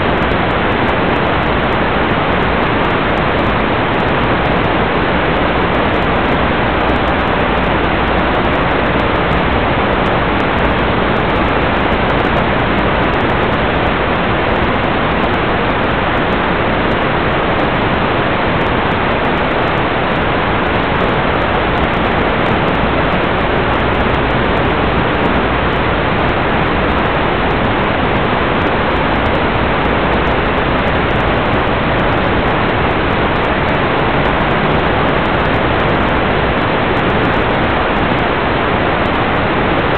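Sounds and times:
loud static hiss: 0.0 - 39.9.

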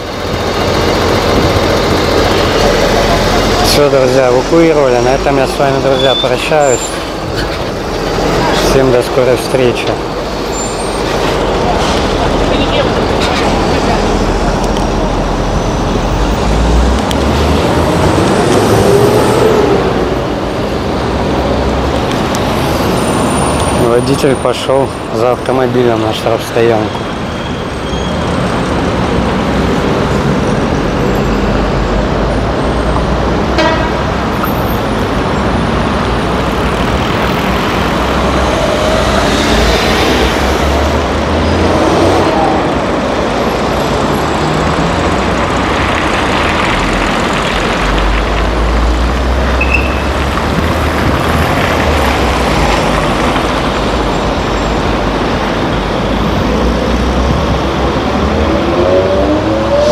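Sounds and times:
traffic driving past: 0.0 - 59.9.

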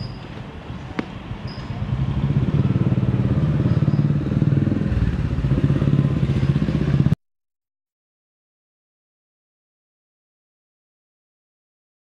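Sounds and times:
engine running: 0.7 - 7.2.

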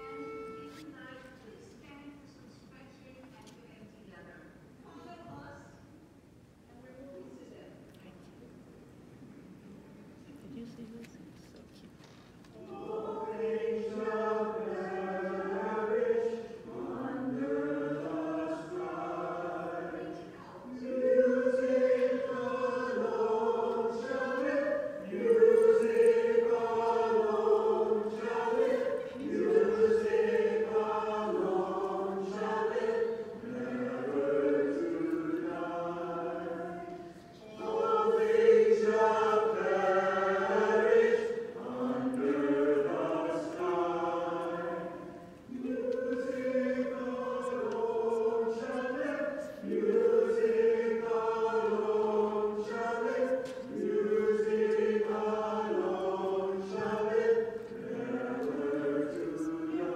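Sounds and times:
choir singing in harmony: 12.6 - 59.9.

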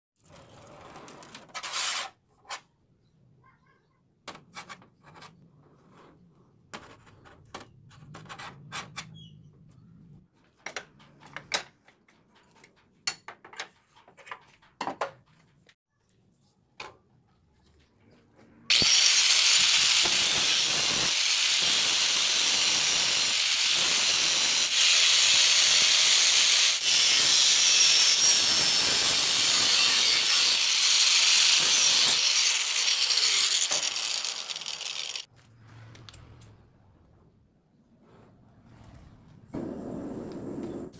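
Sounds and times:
angle grinder cutting steel: 18.7 - 35.3.

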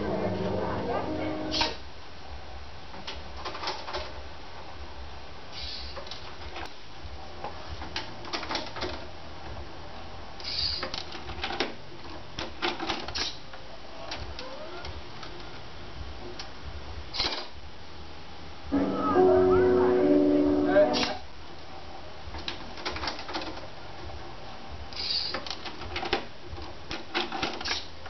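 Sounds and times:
low hum: 18.7 - 21.2.

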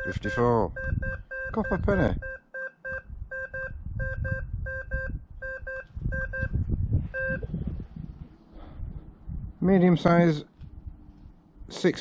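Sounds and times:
metal detector double beeps: 0.0 - 7.5.

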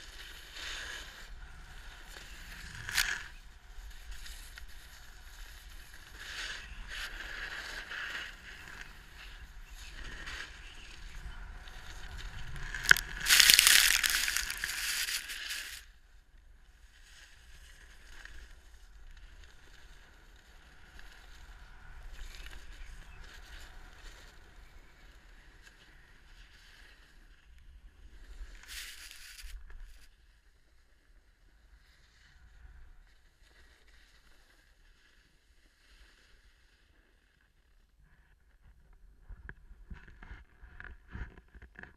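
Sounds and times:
snowboard scraping over snow: 0.0 - 15.9, 28.1 - 30.1.

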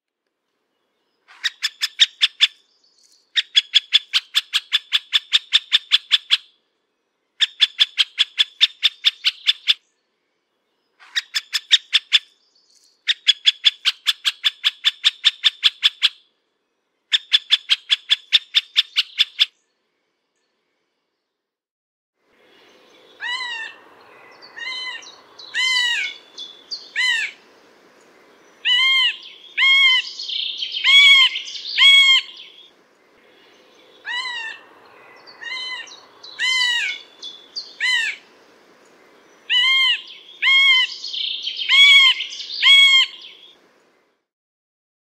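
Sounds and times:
woodpecker call notes: 23.1 - 27.4, 28.6 - 38.3, 39.5 - 43.6.

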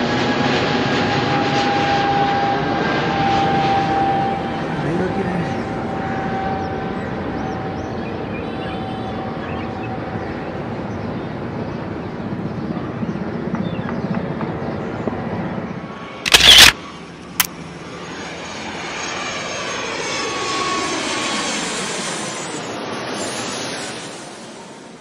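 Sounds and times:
helicopter running: 0.0 - 11.6, 13.2 - 25.0
short click: 16.3 - 16.8.

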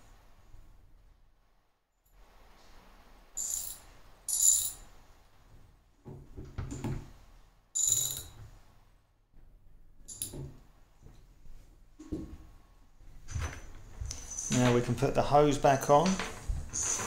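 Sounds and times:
bright metal jingling clinks: 7.8 - 8.4.

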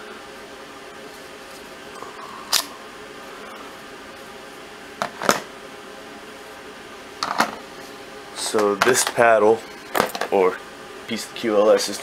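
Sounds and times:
room hum: 0.0 - 12.0.

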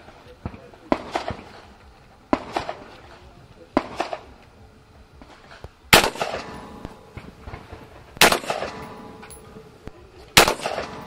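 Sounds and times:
rifle shots with echo: 0.4 - 1.7, 2.3 - 3.1, 3.7 - 4.4, 5.3 - 11.0.

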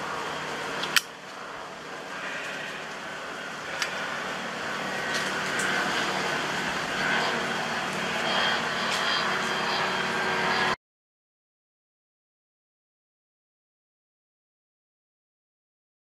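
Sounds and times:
hissing jungle ambience: 0.0 - 10.8.

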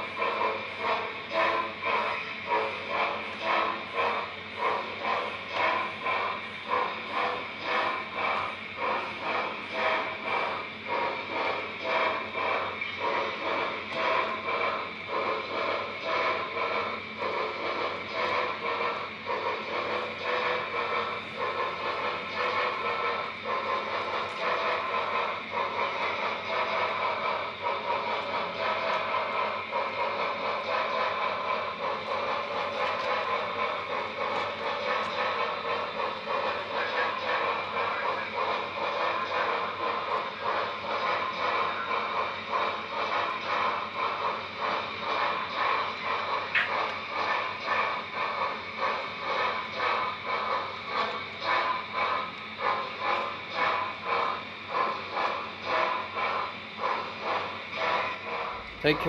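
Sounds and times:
model train cars clattering: 0.0 - 56.3, 56.9 - 59.0.

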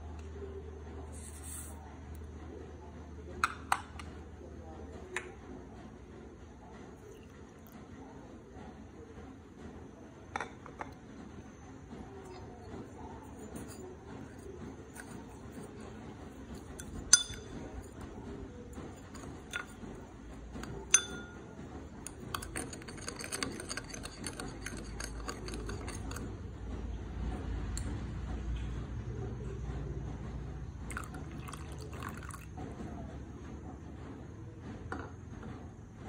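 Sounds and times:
spoon scraping bowl: 1.1 - 1.8, 12.2 - 26.4
spoon clinking ceramic bowl: 16.6 - 18.0, 20.6 - 21.4.

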